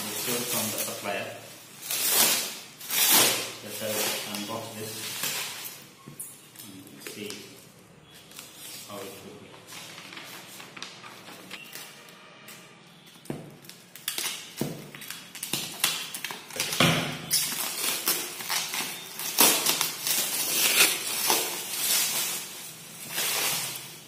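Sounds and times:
plastic wrap crinkling and tearing: 0.0 - 5.9, 13.5 - 24.0.

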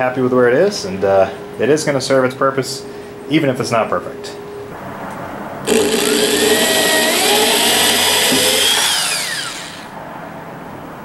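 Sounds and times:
cordless drill driving screw: 5.7 - 9.9.

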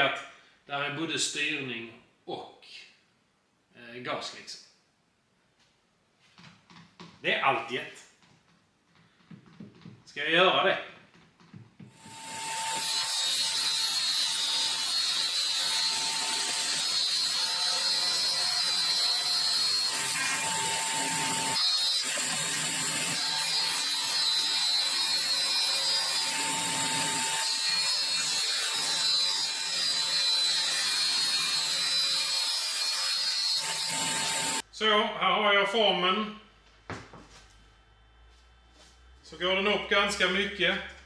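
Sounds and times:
electric power tool cutting wood: 11.9 - 34.6.

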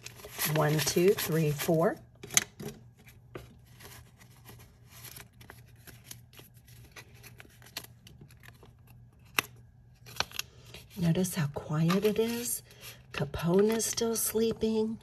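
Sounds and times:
paper rustling: 2.9 - 11.0, 11.8 - 14.2.

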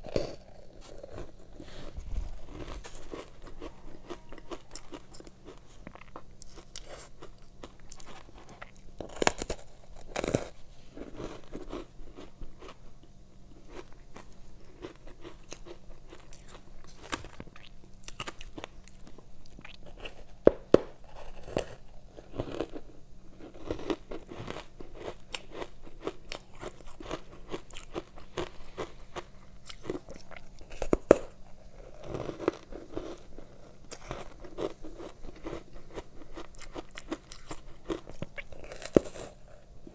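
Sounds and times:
ice being chewed: 0.0 - 12.8, 13.5 - 39.9.

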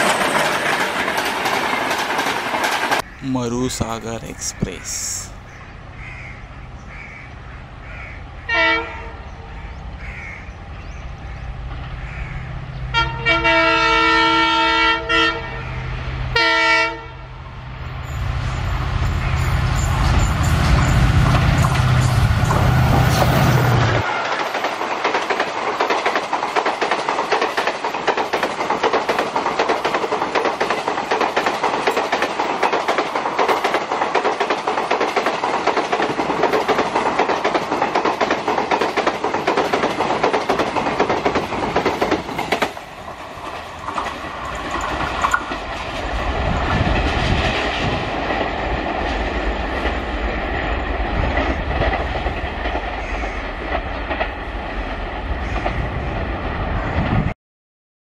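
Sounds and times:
train wheels clattering over rail joints: 0.0 - 3.1, 19.8 - 55.8
train rumbling: 0.0 - 57.4.

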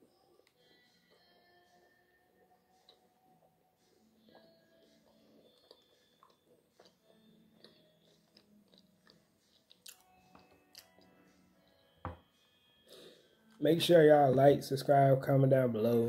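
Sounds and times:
chewing biscuit: 2.7 - 11.1.

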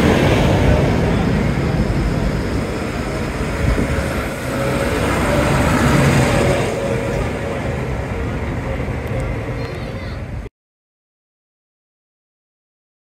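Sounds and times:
tractor driving past: 0.0 - 10.4.

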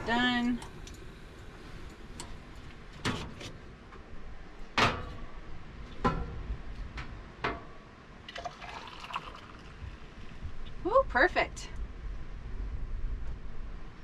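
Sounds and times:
camp stove parts clicking and knocking: 4.7 - 7.9.

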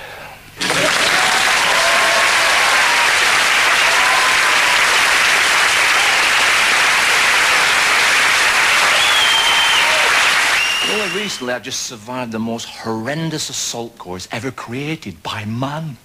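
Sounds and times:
audience applauding: 0.6 - 11.4.

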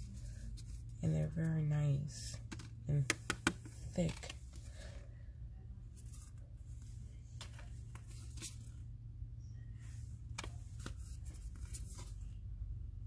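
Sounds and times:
steady low hum: 0.0 - 13.0
postcards rustling: 10.4 - 12.4.

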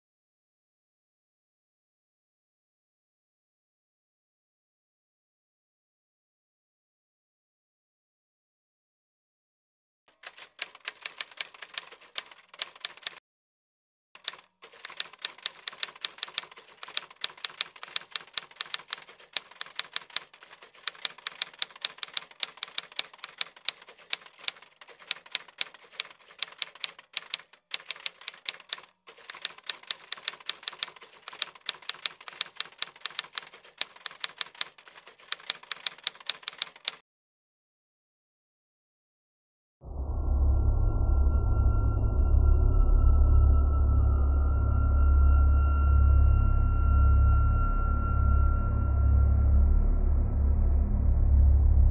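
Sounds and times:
typewriter keys clacking: 10.1 - 13.2, 14.2 - 37.0.

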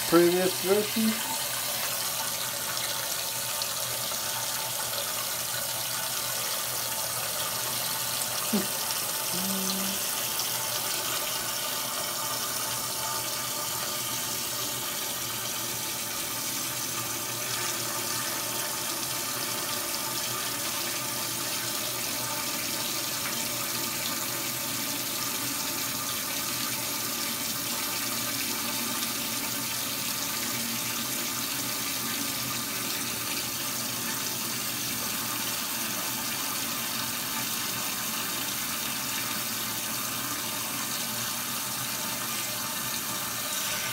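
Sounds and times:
water spraying into a steel kettle: 43.0 - 43.9.

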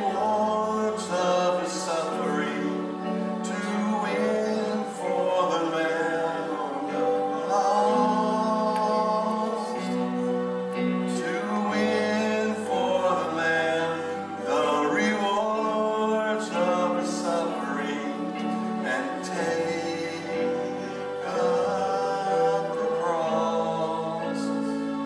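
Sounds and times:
sustained chords: 0.0 - 25.0
worship song singing: 0.0 - 25.0.

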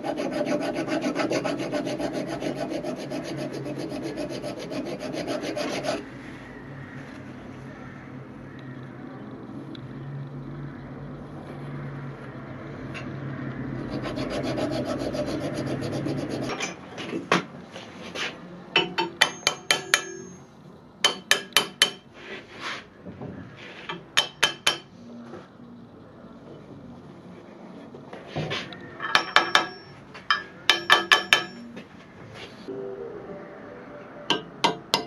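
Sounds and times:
file rasping on metal: 0.0 - 6.1, 13.8 - 16.6, 30.7 - 31.6
ringing metallic taps: 18.8 - 22.0, 29.0 - 31.8, 34.3 - 35.0.

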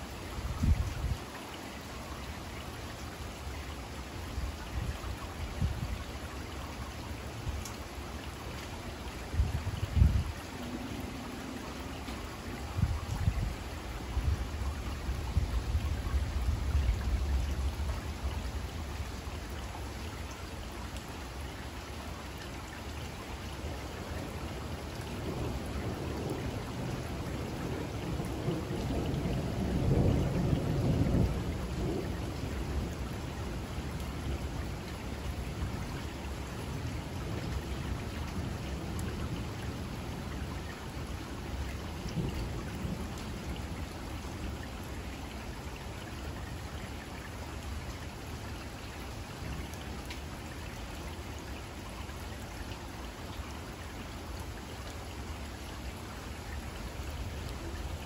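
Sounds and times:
steady rain: 0.0 - 58.0
rolling rumble of thunder: 25.0 - 34.8, 36.6 - 44.6.

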